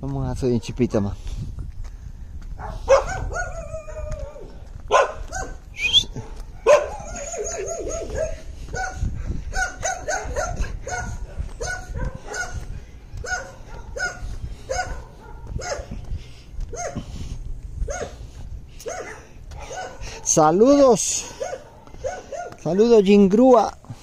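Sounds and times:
dogs barking: 2.6s - 17.1s, 17.8s - 22.8s
dog whining: 5.4s - 8.4s.

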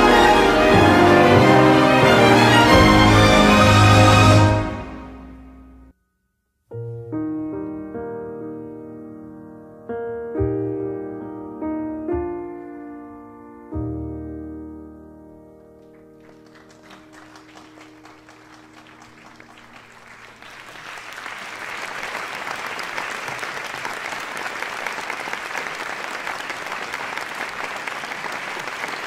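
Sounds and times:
crowd applauding: 15.8s - 29.0s.

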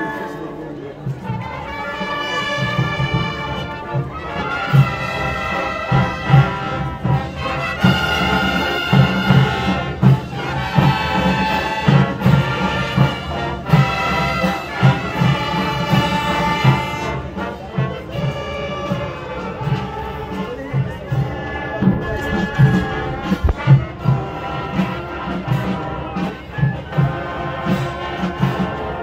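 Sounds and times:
brass band playing chords: 0.0s - 29.0s
bass drum beat: 20.7s - 25.8s.

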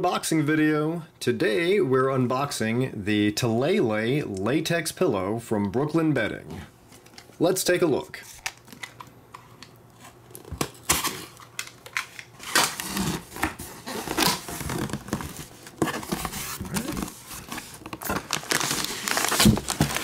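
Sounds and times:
packaging crinkling and tearing: 8.4s - 20.0s.

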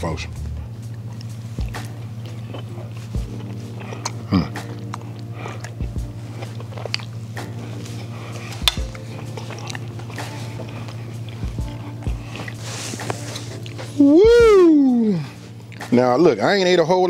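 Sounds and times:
person chewing: 0.7s - 15.9s.

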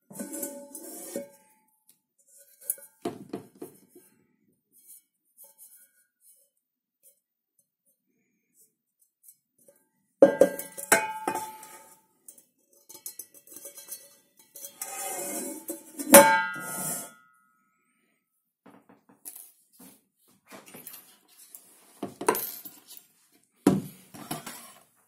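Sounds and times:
pot scraping: 0.0s - 1.5s, 10.6s - 12.0s, 12.7s - 17.2s, 24.2s - 25.0s
steel pot clanking: 10.2s - 15.0s.

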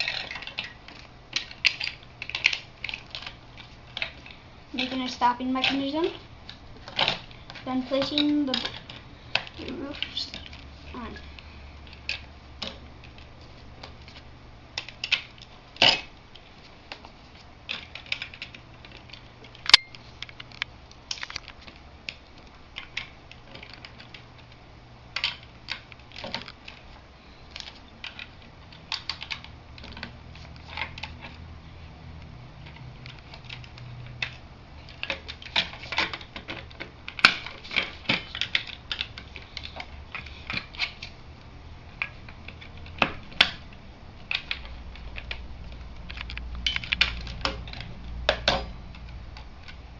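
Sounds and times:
plastic bricks clicking and clattering: 0.0s - 14.2s, 14.8s - 17.1s, 17.7s - 24.5s, 25.2s - 26.9s, 27.5s - 31.4s, 32.6s - 41.1s.

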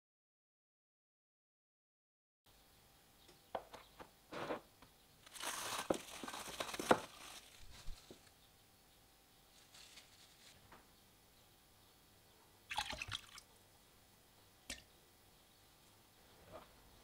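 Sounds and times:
plastic cling film crinkling: 5.2s - 8.3s, 9.5s - 10.7s.

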